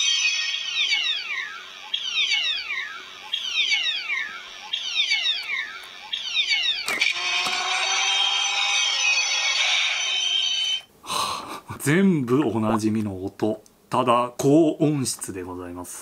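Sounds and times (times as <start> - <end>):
falling electronic sweeps: 0.0 - 10.9
steady electronic tone: 6.5 - 10.9.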